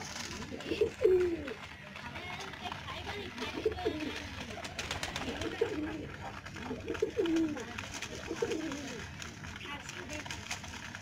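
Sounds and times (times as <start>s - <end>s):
pigeons cooing: 0.1s - 1.6s, 3.3s - 9.3s.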